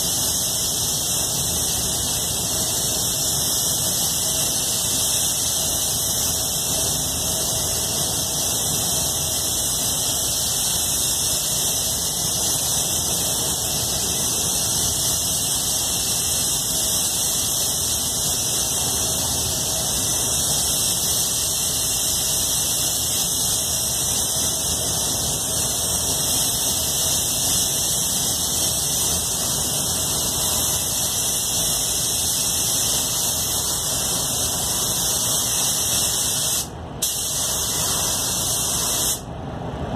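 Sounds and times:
spray gun hissing: 0:00.0 - 0:39.2.

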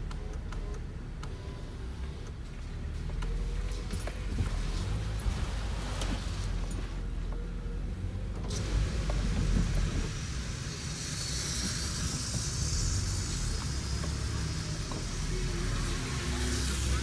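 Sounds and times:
car engine and road rumble: 0:00.0 - 0:17.0
tyre hiss on wet pavement: 0:08.5 - 0:17.0.

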